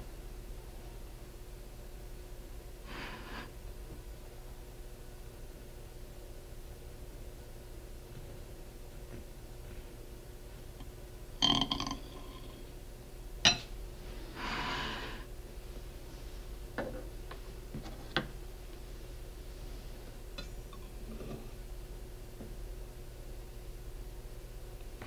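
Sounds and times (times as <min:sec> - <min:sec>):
metal spatula clinking on ceramic plate: 0:13.5 - 0:13.7.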